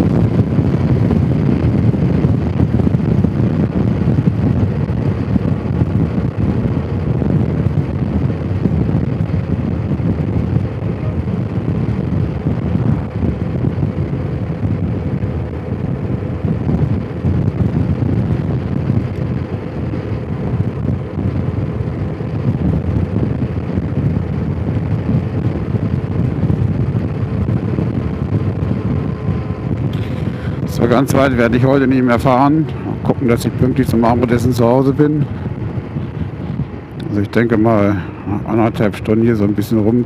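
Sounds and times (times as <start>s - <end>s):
motorcycle engine running: 0.0s - 38.7s
wind buffeting microphone: 0.0s - 40.0s.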